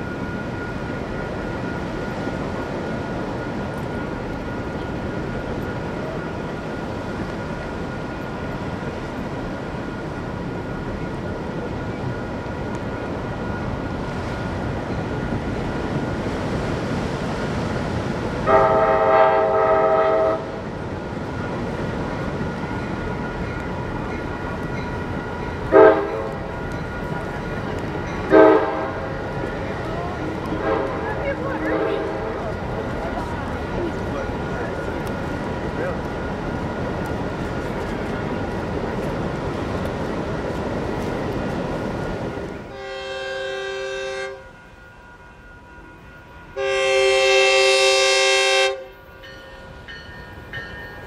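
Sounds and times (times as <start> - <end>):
train background noise: 0.0 - 51.0
train air horn blast: 18.4 - 20.6, 25.7 - 26.4, 28.3 - 29.1, 30.6 - 31.1, 42.7 - 44.6, 46.6 - 49.0.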